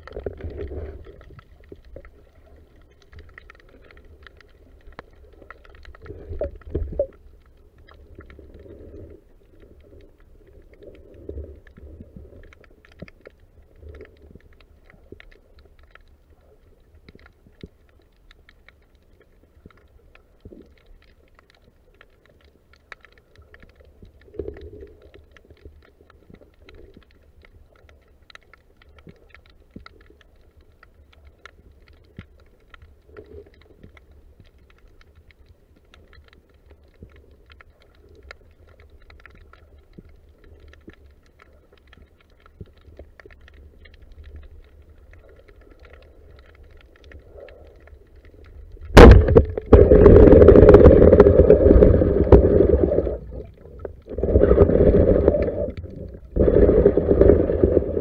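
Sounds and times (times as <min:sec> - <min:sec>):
low underwater rumble: 0:00.0 - 0:58.0
underwater clicks and crackles: 0:00.0 - 0:58.0.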